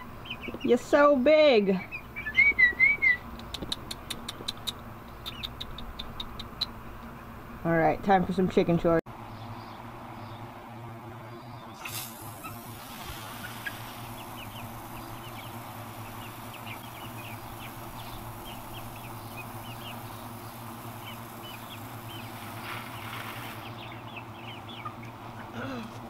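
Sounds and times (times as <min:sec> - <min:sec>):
chicks cheeping: 0:00.0 - 0:07.4, 0:09.2 - 0:26.0
garden hose spraying water: 0:11.8 - 0:23.9.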